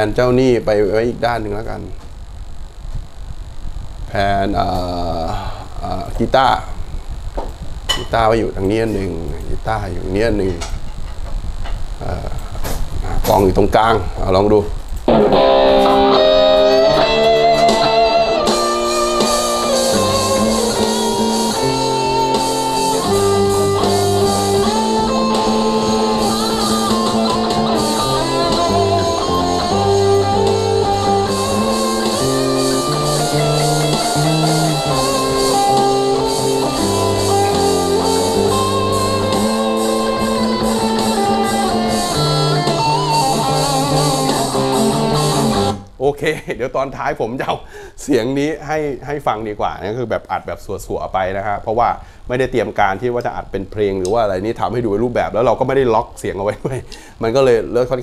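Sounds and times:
electric guitars: 0:04.0 - 0:46.0
drums: 0:14.7 - 0:45.8
bass guitar: 0:15.0 - 0:45.9.

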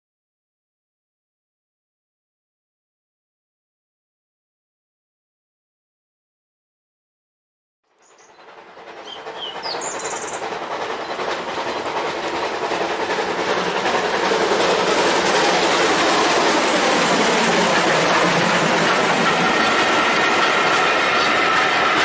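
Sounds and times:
train wheels rattling over track: 0:07.9 - 0:22.0.

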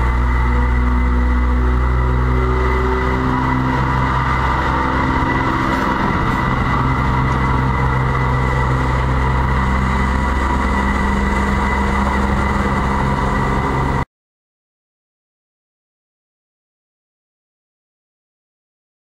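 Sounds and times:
locomotive engine humming: 0:00.0 - 0:14.0
high whine: 0:00.0 - 0:14.1.

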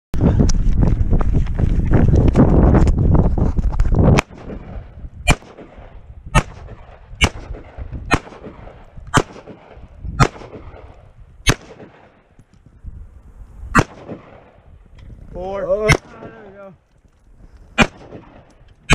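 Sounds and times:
wind rumble on microphone: 0:00.2 - 0:18.9
rifle single shots: 0:04.2 - 0:12.3, 0:13.7 - 0:14.6, 0:15.8 - 0:16.4, 0:17.8 - 0:18.9.

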